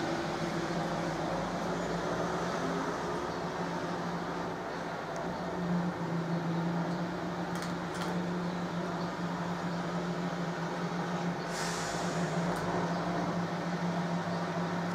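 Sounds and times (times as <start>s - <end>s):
short hiss: 11.5s - 12.5s.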